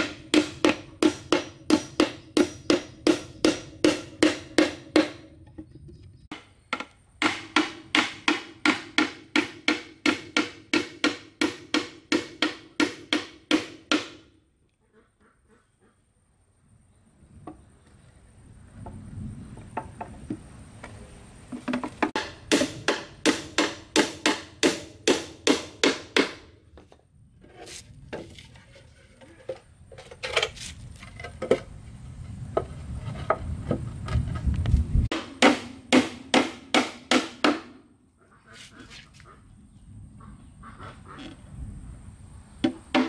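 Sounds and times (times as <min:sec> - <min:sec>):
hand tool striking wood: 0:00.0 - 0:05.7, 0:06.3 - 0:14.3, 0:21.5 - 0:27.0, 0:35.1 - 0:37.8, 0:42.6 - 0:43.0.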